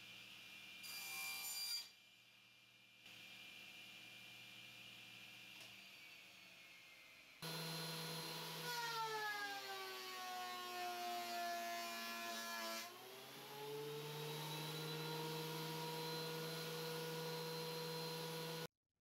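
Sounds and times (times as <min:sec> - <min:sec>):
thickness planer motor whining: 0:05.9 - 0:18.7.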